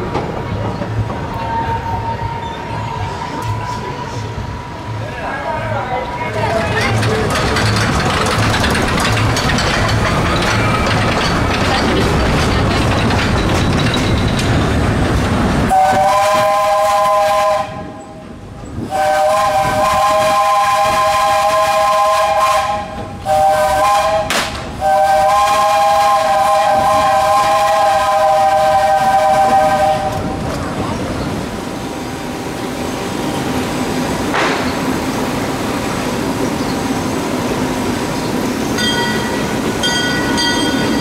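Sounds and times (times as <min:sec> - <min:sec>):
rail and coach rumble: 0:00.0 - 0:41.0
steam whistle blasts: 0:15.7 - 0:18.0, 0:18.9 - 0:30.2.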